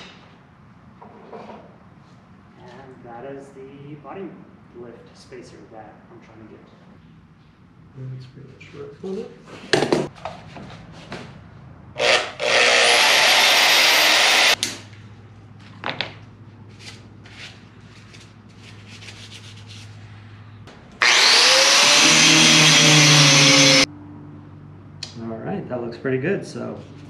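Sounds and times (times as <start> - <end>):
power tool grinding: 12.0 - 14.6, 21.0 - 23.9.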